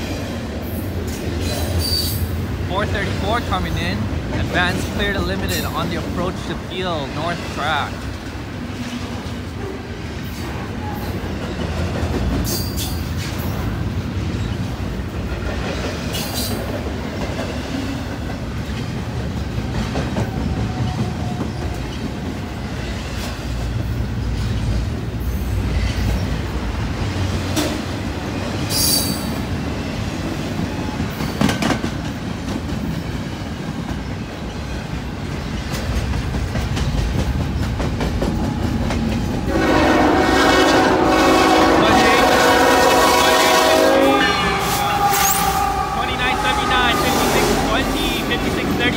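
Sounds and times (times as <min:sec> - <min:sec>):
freight train wheels rumbling on rail: 0:00.0 - 0:48.9
locomotive air horn chord: 0:39.5 - 0:48.8.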